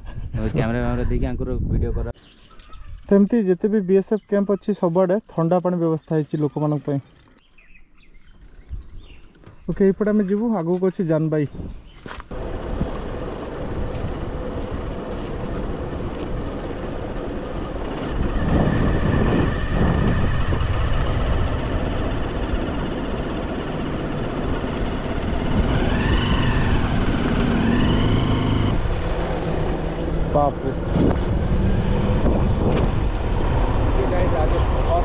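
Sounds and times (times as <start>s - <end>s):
wind rush on microphone: 0.0s - 3.1s, 11.5s - 35.0s
motorcycle engine running: 12.3s - 34.1s
whining tone: 12.4s - 35.0s.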